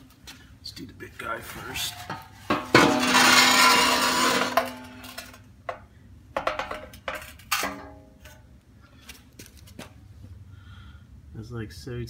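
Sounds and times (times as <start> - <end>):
metal clunks: 1.9 - 5.8
metal knocking on concrete: 6.4 - 7.9.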